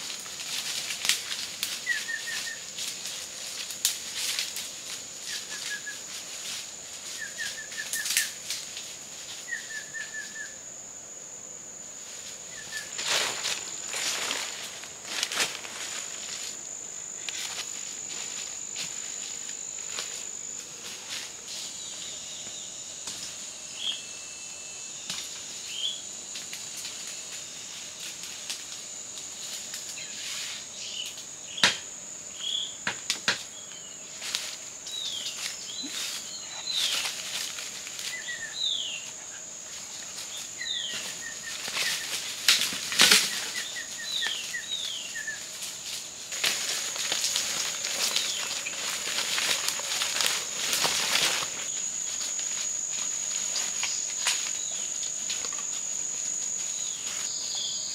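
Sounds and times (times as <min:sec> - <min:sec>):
footsteps in dry leaves: 0:00.0 - 0:09.6, 0:12.1 - 0:22.0, 0:34.1 - 0:38.9, 0:39.7 - 0:57.6
high insect drone: 0:00.0 - 0:57.9.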